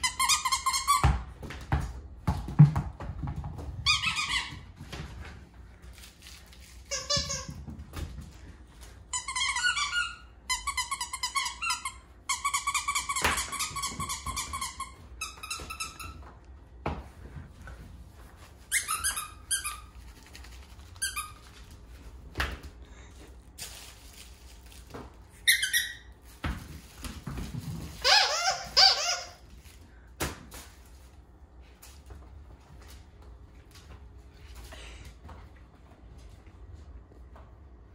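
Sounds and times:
squeaky dog toy squeaks: 0.0 - 1.1, 6.9 - 7.5, 9.1 - 16.2, 18.7 - 19.9, 25.4 - 26.1, 28.0 - 29.4.

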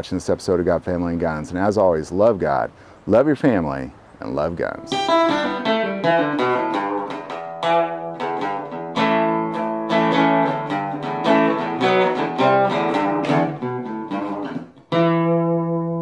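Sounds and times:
plucked guitar notes: 4.7 - 16.0
guitar chord ringing: 4.8 - 16.0.

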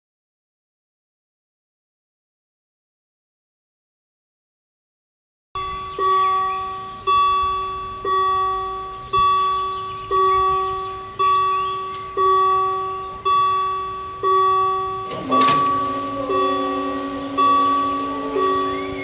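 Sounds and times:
level-crossing warning bell ringing: 5.6 - 19.0.

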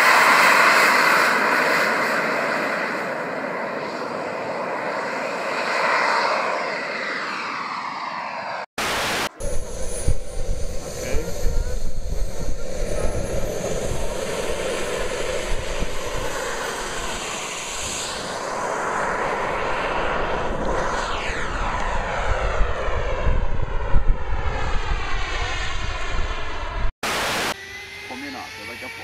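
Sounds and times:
model jet engine whine: 0.0 - 29.0.

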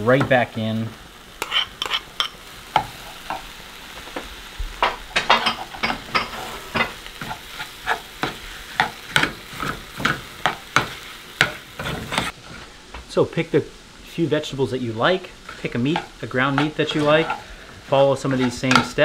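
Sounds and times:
meat sizzling in a skillet: 0.0 - 19.0
metal spoon scraping a pan: 1.3 - 3.4, 5.2 - 12.4, 15.4 - 19.0.

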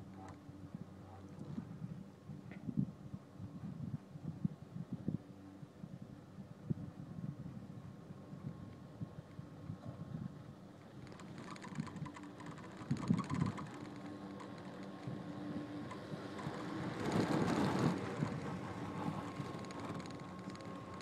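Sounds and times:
wind on microphone: 0.7 - 21.0
chairlift rope humming and clicking: 8.2 - 21.0.

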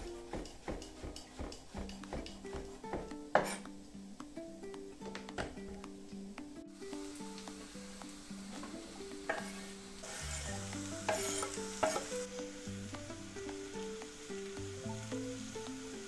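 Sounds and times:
spatula stirring: 0.0 - 3.7, 9.2 - 12.3
light background music: 0.0 - 16.0
utensil knocking on board: 0.3 - 3.6
food sizzling in a pan: 1.9 - 3.7, 6.8 - 16.0.

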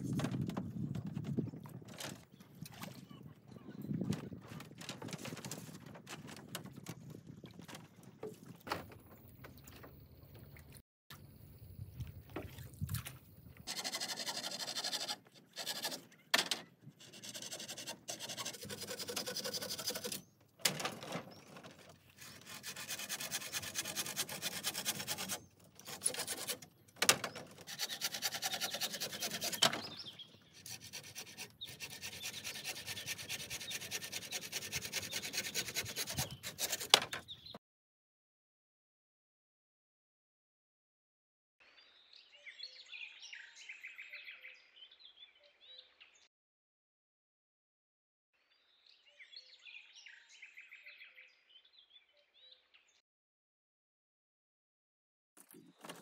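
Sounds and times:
hand tool rasping on bamboo: 13.7 - 16.1, 17.0 - 20.3, 22.2 - 26.7, 27.5 - 37.2.

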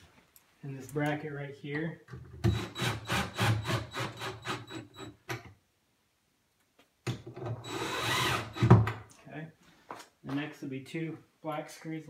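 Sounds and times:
drill-driver driving screw into wood: 2.4 - 5.1, 7.6 - 8.9.

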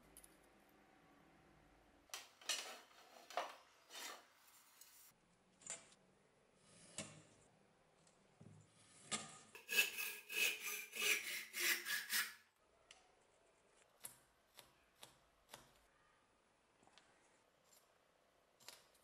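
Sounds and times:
hand saw cutting wood: 9.6 - 12.4.

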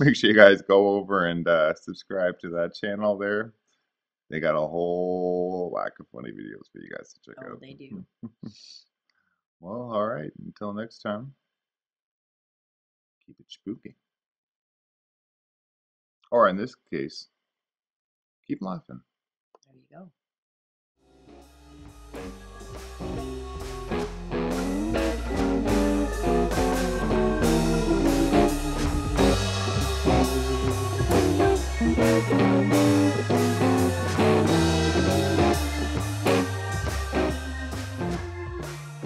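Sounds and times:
instrumental guitar music with beat: 22.2 - 39.0.

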